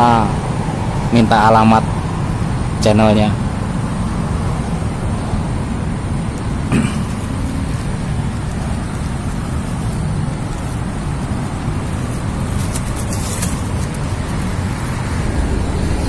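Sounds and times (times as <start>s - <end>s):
road traffic rumble: 0.0s - 16.0s
rustling crackle: 6.2s - 16.0s.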